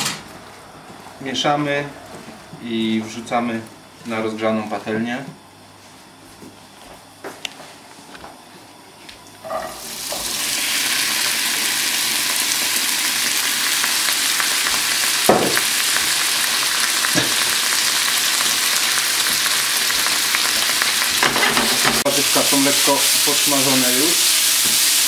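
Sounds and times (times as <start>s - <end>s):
vegetables sizzling in frying pan: 9.5s - 25.0s
knock: 15.3s - 15.6s.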